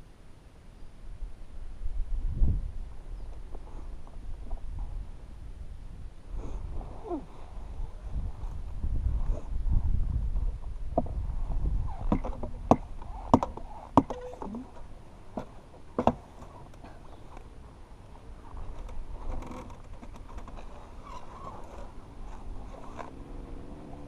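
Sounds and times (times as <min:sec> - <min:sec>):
rustling: 0:06.4 - 0:23.2
quiet scraping: 0:11.0 - 0:23.4
sharp knocks: 0:12.1 - 0:14.3.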